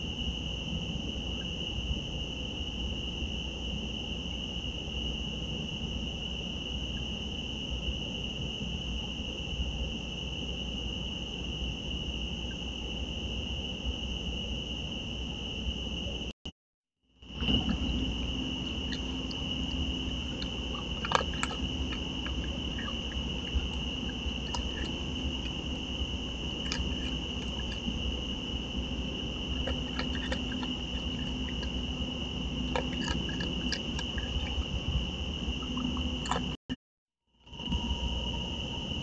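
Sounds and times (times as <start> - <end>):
night insects trilling: 0.0 - 16.3, 17.2 - 36.6, 37.5 - 39.0
animal chewing dry food: 17.4 - 34.8, 35.6 - 36.6.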